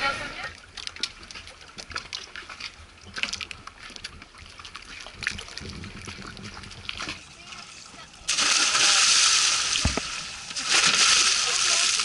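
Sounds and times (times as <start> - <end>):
water lapping against boat hulls: 0.0 - 12.0
small splashes and clicks: 0.6 - 7.3.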